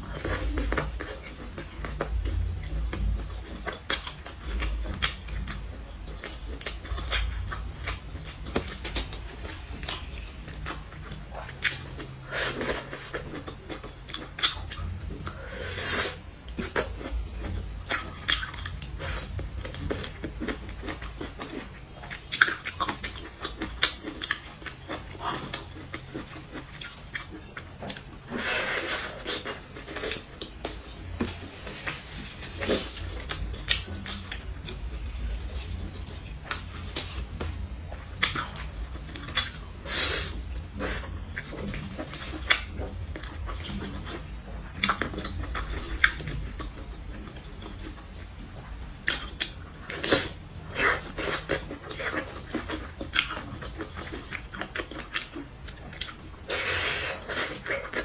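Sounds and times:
close chewing and mouth sounds: 0.0 - 58.0.

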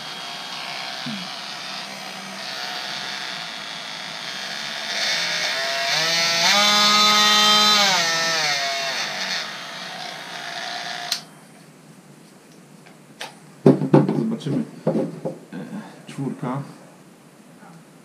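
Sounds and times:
oscillating multi-tool buzzing: 0.0 - 11.3.

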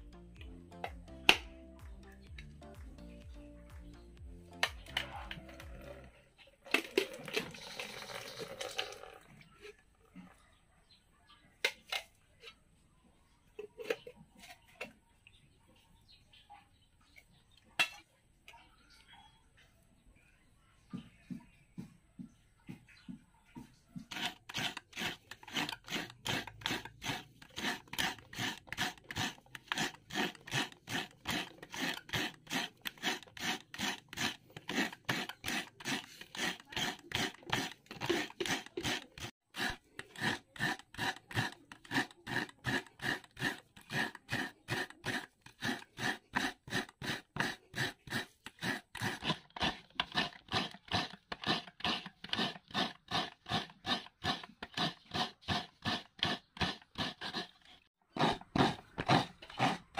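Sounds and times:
coconut grating rasps: 6.7 - 8.9, 23.9 - 59.9.

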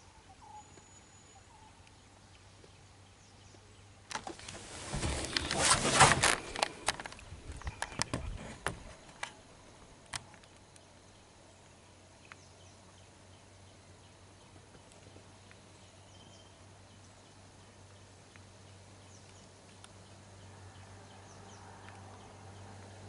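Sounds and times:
faint bird chirps: 0.0 - 4.0, 7.4 - 23.0
handheld camera rustling and knocking: 4.1 - 9.4.

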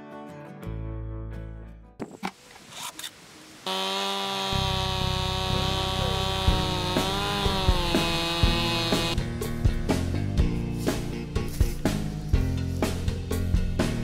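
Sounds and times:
chainsaw running at high revs: 3.6 - 9.2.

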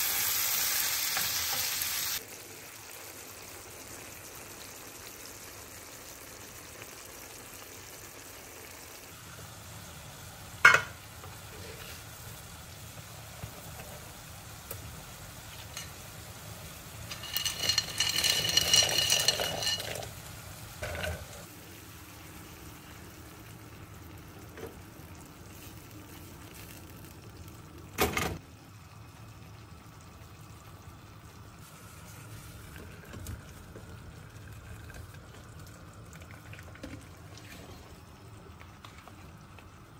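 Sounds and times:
food sizzling in a pan: 0.0 - 36.5
metal utensil scraping pan: 17.1 - 20.1.

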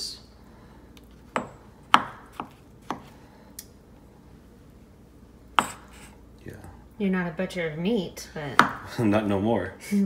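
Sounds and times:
knife chopping on wooden board: 1.3 - 3.2, 5.6 - 6.1, 8.5 - 8.9.

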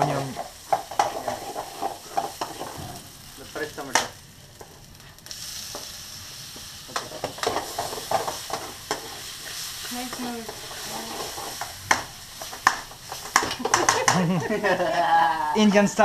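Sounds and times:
metal utensil scraping a pan: 0.0 - 3.0, 6.9 - 14.0
onion sizzling in oil: 0.0 - 16.0.

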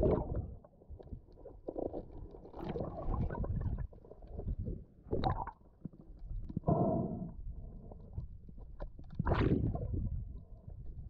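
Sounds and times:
water sloshing and gurgling: 0.0 - 11.0.

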